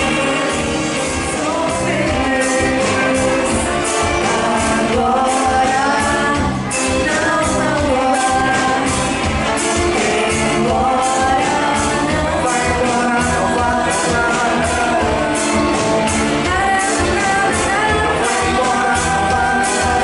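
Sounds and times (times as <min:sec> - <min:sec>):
big band playing pop-rock song: 0:00.0 - 0:20.0
steady drum beat: 0:00.0 - 0:20.0.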